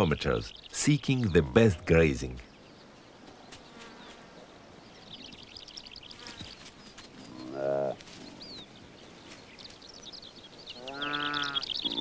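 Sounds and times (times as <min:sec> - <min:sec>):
small birds twittering: 0:00.0 - 0:12.0
antelope bleating: 0:10.8 - 0:12.0.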